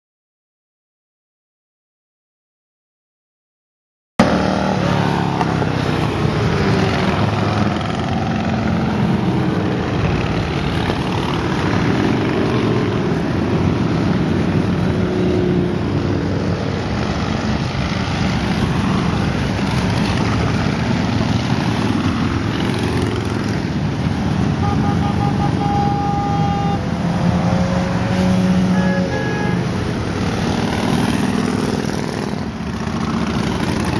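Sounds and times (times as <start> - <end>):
motorcycles rumbling past: 4.2 - 33.9
pulsed high tone: 24.6 - 29.7.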